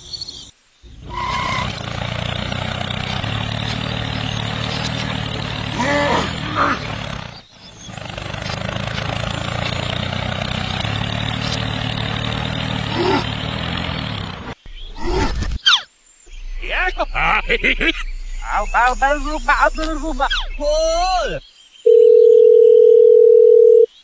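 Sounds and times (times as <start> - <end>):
tractor engine drone: 0.9 - 15.5, 16.3 - 21.4
short gliding calls: 14.9 - 21.4.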